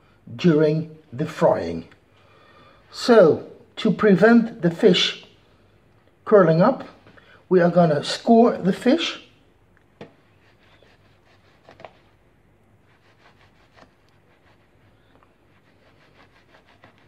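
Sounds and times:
knife scratching through fish skin: 10.4 - 12.2, 12.9 - 17.0.

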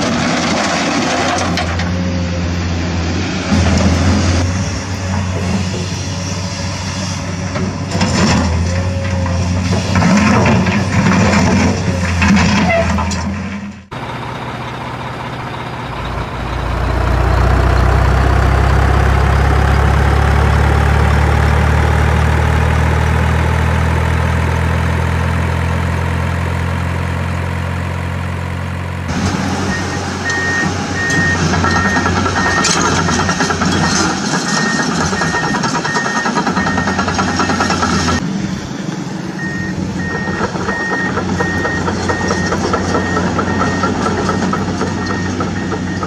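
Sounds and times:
heavy machinery engine running: 0.0 - 46.0
reversing alarm beeping: 29.7 - 32.9, 33.7 - 38.2, 39.4 - 46.0.

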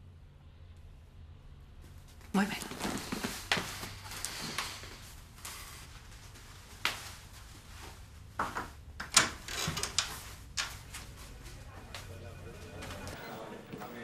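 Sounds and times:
people walking and rustling: 1.8 - 8.8, 10.0 - 14.0.

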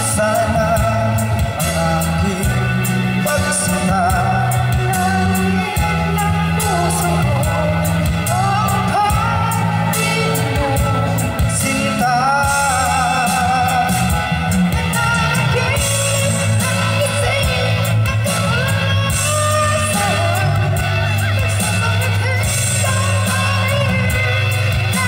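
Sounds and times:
instrumental backing music: 0.0 - 25.0
man singing: 0.0 - 25.0
woman singing: 0.0 - 25.0.

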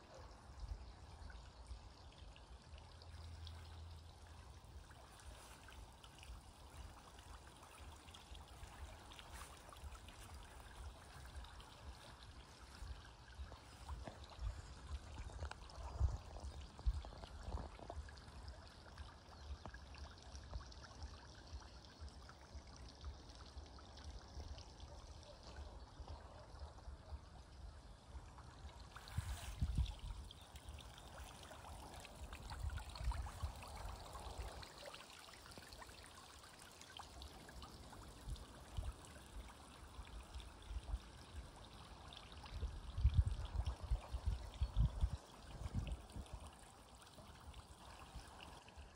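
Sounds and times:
water trickling: 0.0 - 48.9.

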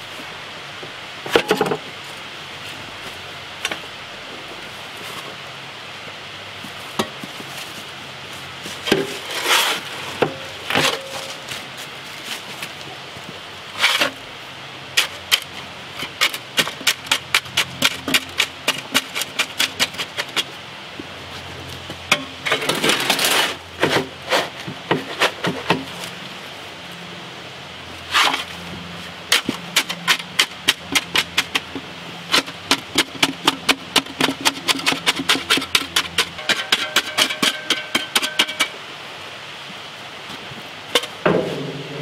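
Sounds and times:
shovel scraping wet concrete: 8.8 - 11.5, 13.7 - 14.2, 22.5 - 26.0, 28.1 - 28.6, 32.3 - 38.8.

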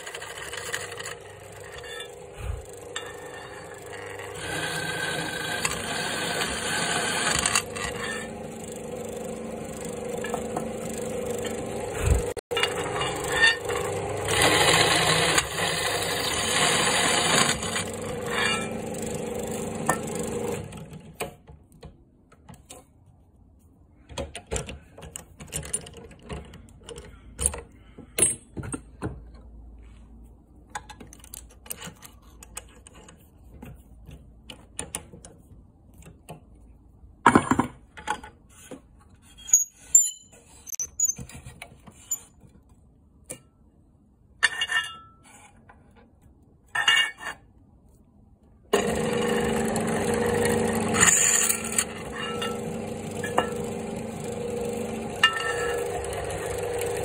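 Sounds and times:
drill press cutting metal: 0.0 - 21.0, 48.8 - 57.0.

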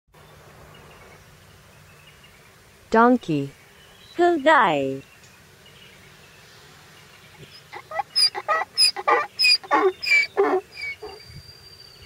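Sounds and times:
donkey braying: 7.4 - 11.3.

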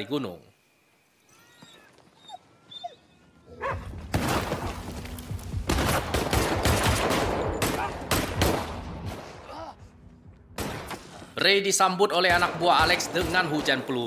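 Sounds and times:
gunshots volley: 5.7 - 9.5, 10.6 - 11.2, 12.2 - 14.0.

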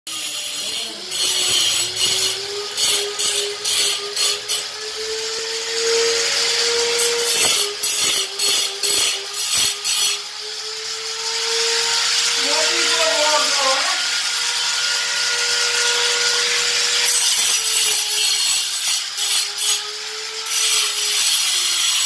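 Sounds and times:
grinding hiss on stone: 0.1 - 4.7, 7.0 - 10.3
die grinder motor whine: 0.1 - 18.4.

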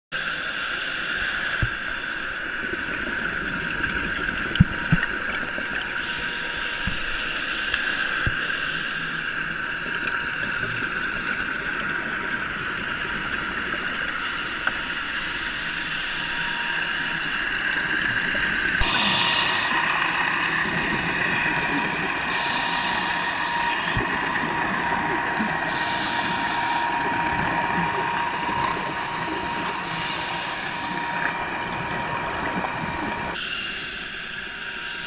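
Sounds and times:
faint hum: 0.2 - 35.0
underwater hiss: 0.2 - 35.0.

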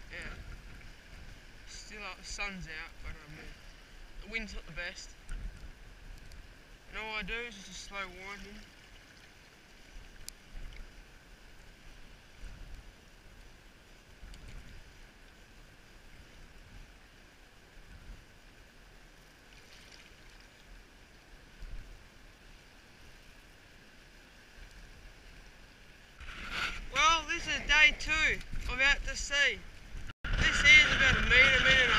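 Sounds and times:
wind buffeting microphone: 26.2 - 31.9.

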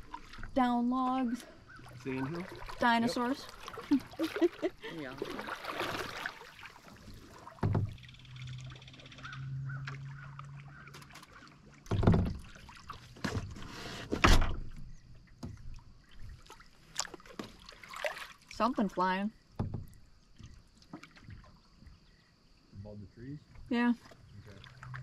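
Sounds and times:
water sounds: 0.0 - 25.0
paddle knocking on canoe hull: 7.4 - 8.0, 11.8 - 13.6, 19.5 - 21.5.

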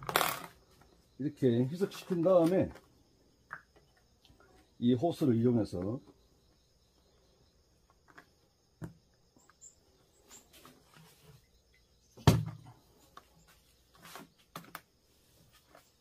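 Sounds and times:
high insect drone: 0.0 - 16.0
loud thump: 12.2 - 12.6.

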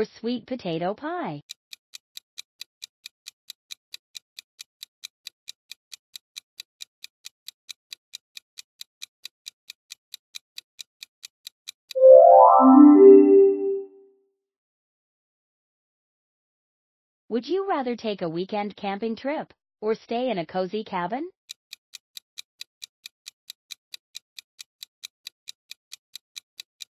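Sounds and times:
countdown timer ticking: 12.0 - 13.8
short synthesizer notes: 12.0 - 13.8.

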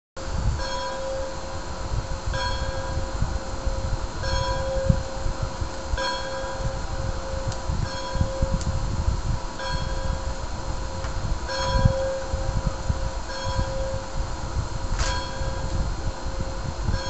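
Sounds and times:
steady low rumble: 0.2 - 17.0
bell tolling: 0.6 - 1.3, 4.2 - 5.0, 6.0 - 8.5, 11.5 - 12.2, 13.3 - 14.0, 15.0 - 15.6.

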